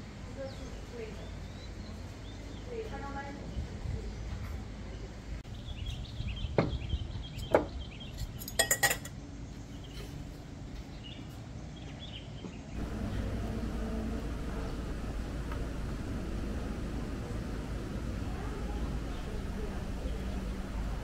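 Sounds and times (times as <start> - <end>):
outdoor background noise: 0.0 - 21.0
cutlery clinking: 8.2 - 9.2.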